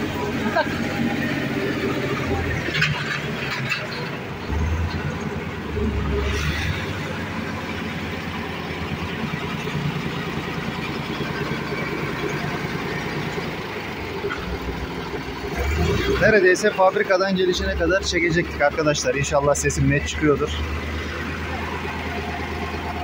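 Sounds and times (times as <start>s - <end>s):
forklift engine running: 0.0s - 23.0s.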